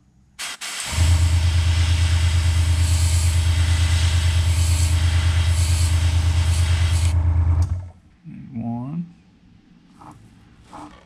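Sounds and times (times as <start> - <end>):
airbrush spraying hiss: 0.4 - 7.2
air compressor humming: 0.4 - 7.9.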